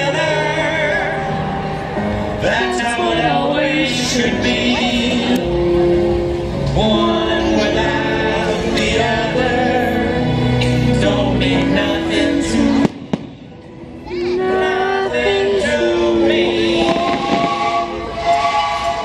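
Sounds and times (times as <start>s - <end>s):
loud music: 0.0s - 19.0s
firework bangs: 12.8s - 13.7s, 16.8s - 18.3s.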